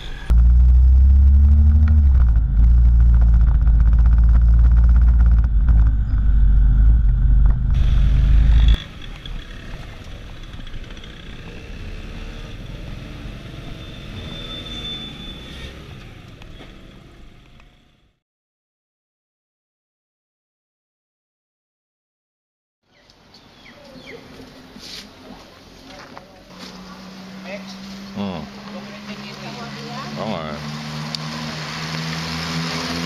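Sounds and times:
motorcycle engine rumble: 0.0s - 14.2s
small motorcycle engine: 0.0s - 18.2s, 26.5s - 33.0s.

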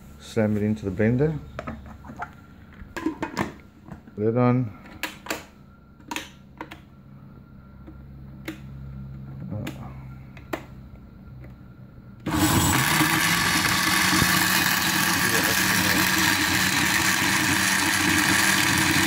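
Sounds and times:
blender motor chopping leaves: 12.3s - 19.0s.

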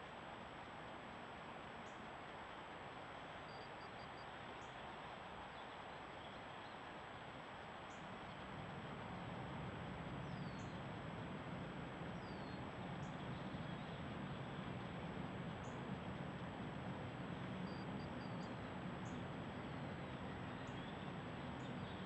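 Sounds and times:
microphone hiss: 0.0s - 22.0s
faint bird chirps: 3.4s - 4.8s, 10.2s - 10.8s, 17.6s - 22.0s.

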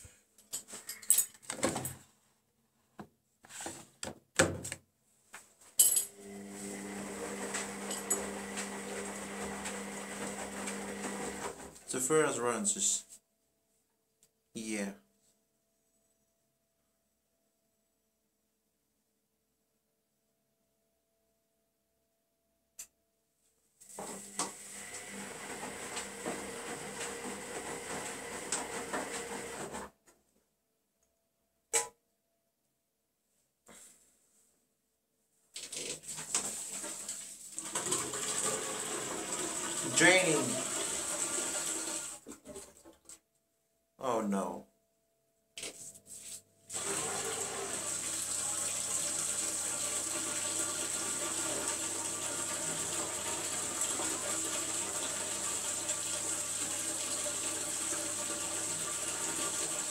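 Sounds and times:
washing machine humming: 6.1s - 11.8s, 24.0s - 29.9s, 36.4s - 42.8s, 46.7s - 59.9s.

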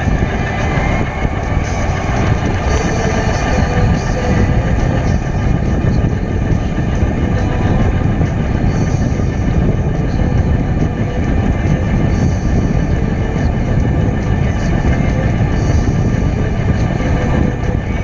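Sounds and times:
faint steady whine: 0.0s - 18.0s
road noise: 0.0s - 18.0s
wind rush on microphone: 0.0s - 18.0s.

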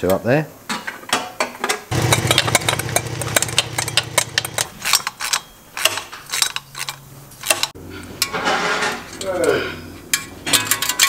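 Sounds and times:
metal clinks and rattles: 2.0s - 9.5s, 10.1s - 11.0s.

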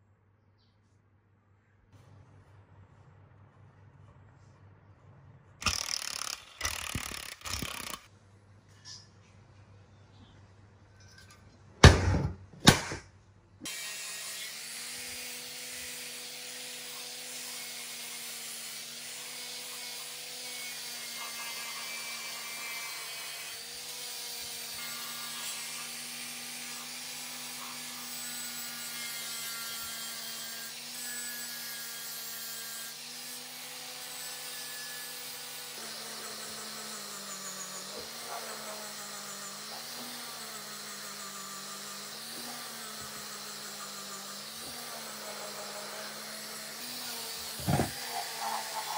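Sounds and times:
angle grinder grinding metal: 5.6s - 8.1s, 13.7s - 48.9s.

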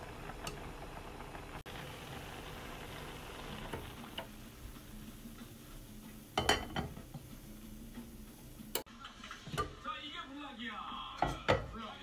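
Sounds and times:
pot boiling and bubbling: 0.0s - 12.0s
glass lid clinking on pot: 6.4s - 7.0s.

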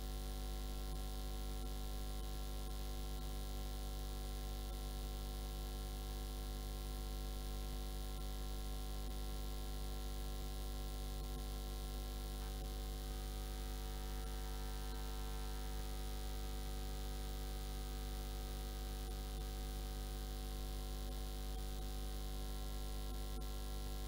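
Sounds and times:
electrical mains hum: 0.0s - 24.0s
constant hiss: 11.0s - 16.0s.

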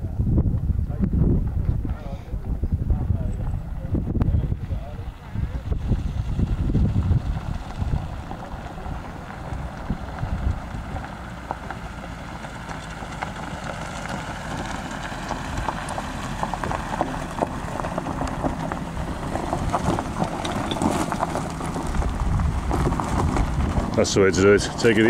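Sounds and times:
car engine running low: 0.0s - 25.0s
tyres crunching over stones: 7.0s - 25.0s.

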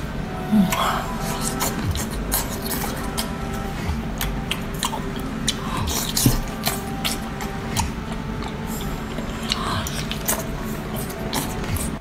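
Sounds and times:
wet chewing and slurping: 0.6s - 12.0s.

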